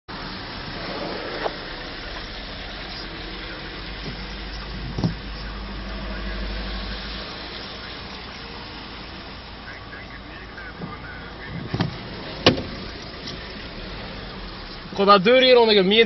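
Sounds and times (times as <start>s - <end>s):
car engine hum: 0.1s - 16.0s
tyres hissing on wet road: 0.1s - 16.0s.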